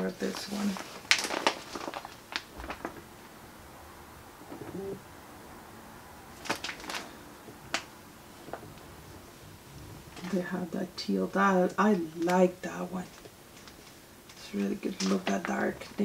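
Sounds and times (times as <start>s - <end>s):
fabric rustling and tapping: 0.0s - 3.1s, 6.4s - 10.4s.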